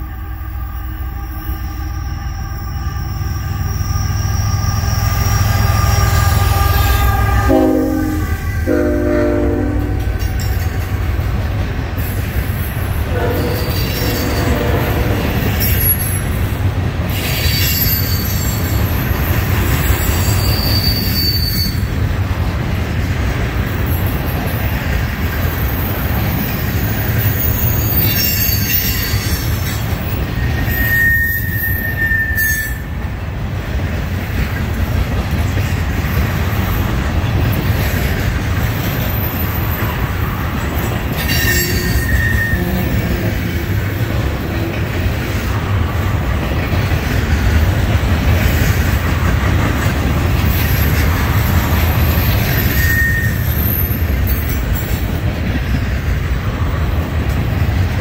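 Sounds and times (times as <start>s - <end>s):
train horn blasts: 0.0s - 10.3s, 13.1s - 15.5s, 41.3s - 44.0s
diesel locomotives rumbling: 0.0s - 58.0s
high wheel squeal: 1.0s - 7.5s, 17.2s - 21.9s, 25.4s - 29.4s, 30.2s - 32.9s, 41.1s - 44.0s, 52.2s - 54.6s
train wheels clickety-clack: 4.0s - 58.0s.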